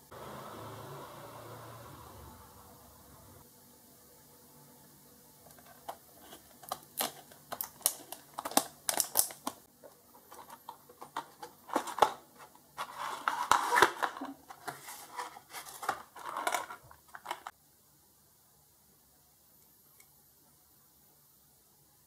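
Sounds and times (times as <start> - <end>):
plastic blister packaging crinkling: 5.5 - 17.5.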